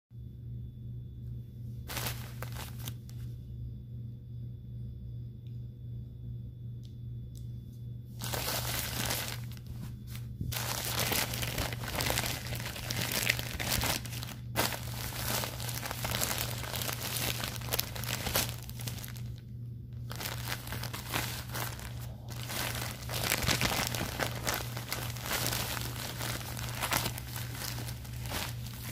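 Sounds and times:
steady low hum: 0.1 - 28.9
plastic crinkling: 1.9 - 3.2, 8.2 - 28.9.

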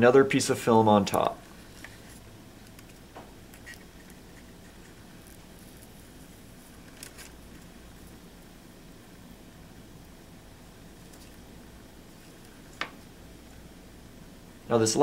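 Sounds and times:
low room hum: 0.0 - 15.0
film crinkling: 1.0 - 8.5, 10.8 - 13.7.

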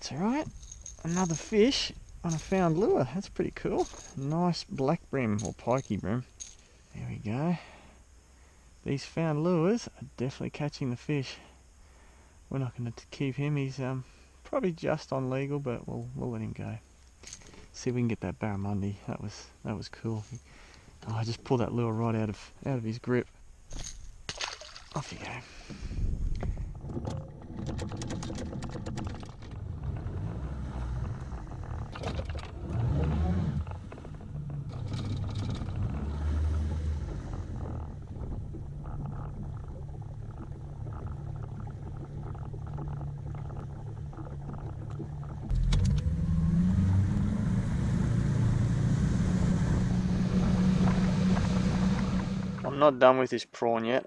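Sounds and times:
knocks and clatters: 3.8 - 4.3, 26.3 - 46.1
outboard motor running: 25.6 - 52.8.

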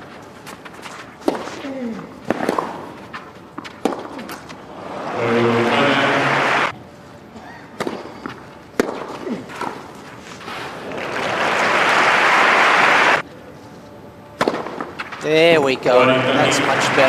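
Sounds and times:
racket hitting ball: 0.6 - 5.3, 7.8 - 10.1, 14.4 - 15.2
crowd cheering: 4.6 - 6.7, 10.7 - 13.2, 15.9 - 17.0
crowd applauding: 4.7 - 6.7, 10.7 - 13.2, 16.0 - 17.0.

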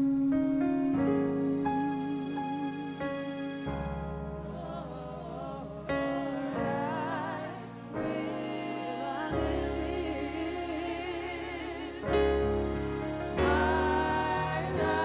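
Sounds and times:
gospel singing over chords: 0.0 - 15.0.

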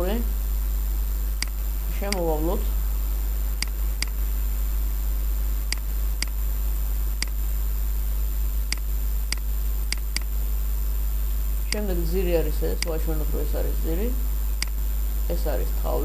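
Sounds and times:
steady low hum: 0.0 - 16.0
computer mouse clicking: 8.7 - 10.3.

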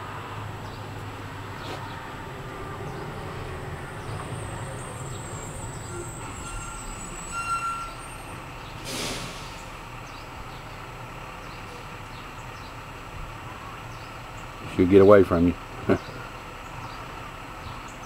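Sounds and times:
low background rumble: 0.0 - 8.8
brief hiss: 8.8 - 9.8.

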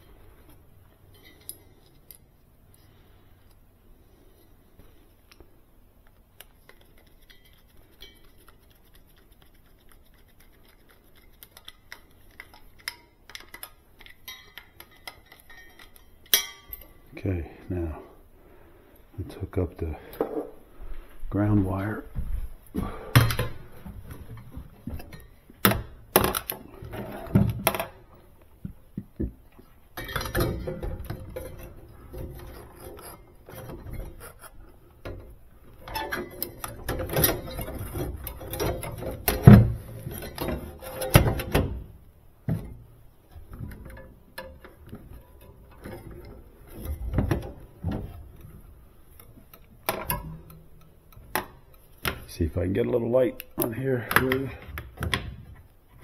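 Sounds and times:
clicks and clatter of metal parts: 1.0 - 2.9, 10.6 - 17.0, 29.6 - 41.7, 43.3 - 52.4.

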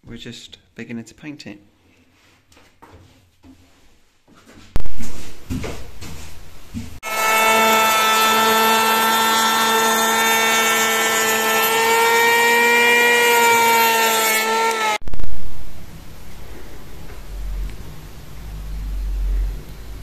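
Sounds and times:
electric hand planer whine: 7.0 - 15.0.

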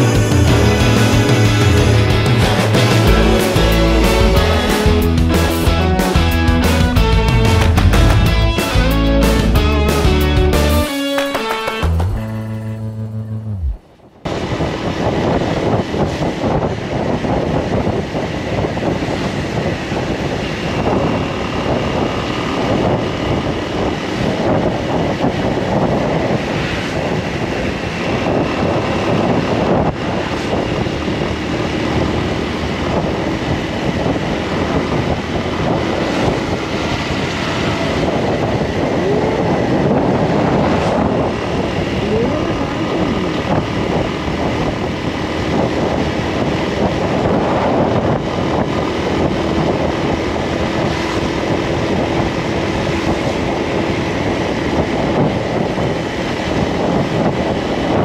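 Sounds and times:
motor vehicle running: 0.0 - 58.0
wind on microphone: 12.1 - 58.0.

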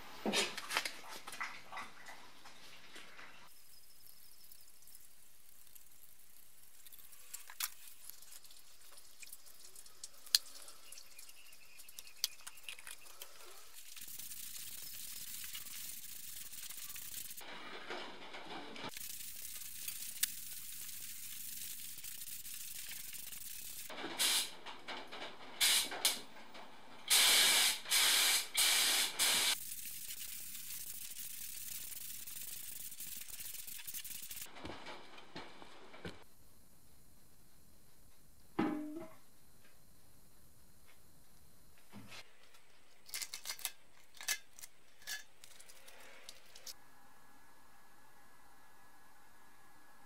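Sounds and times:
faint steady hiss with crackling: 0.0 - 38.6
paint spray gun hissing: 13.2 - 17.4, 18.9 - 24.6, 25.6 - 26.1, 27.1 - 34.5
faint hiss: 27.1 - 34.5.

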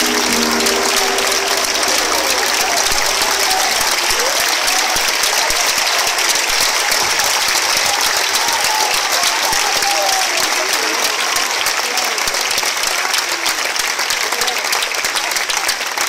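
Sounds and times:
band holding last note: 0.0 - 5.1
voices calling out: 0.0 - 5.8
audience applauding: 0.0 - 16.0.

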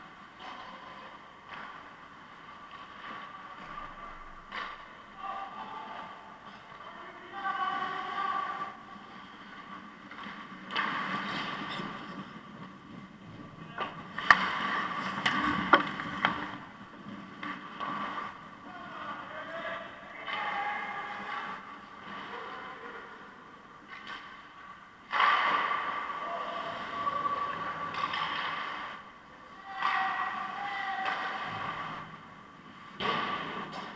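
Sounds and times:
skates scraping ice: 0.0 - 33.9
sharp clacks of stick or puck: 0.3 - 2.0, 2.6 - 5.0, 9.4 - 12.7, 13.8 - 18.4, 20.2 - 22.3, 23.9 - 26.1, 27.9 - 29.0, 29.6 - 32.0, 32.9 - 33.9.

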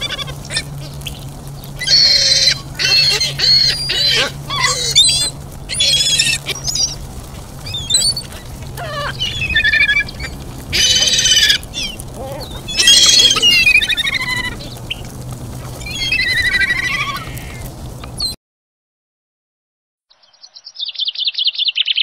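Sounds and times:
gulls calling: 0.0 - 18.4.

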